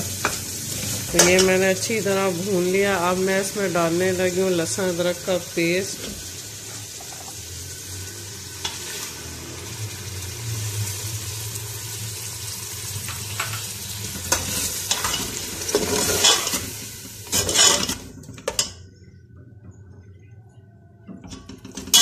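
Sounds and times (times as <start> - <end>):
meat sizzling in hot oil: 0.0 - 18.0
metal spoon scraping pot: 14.3 - 16.6, 17.3 - 18.7.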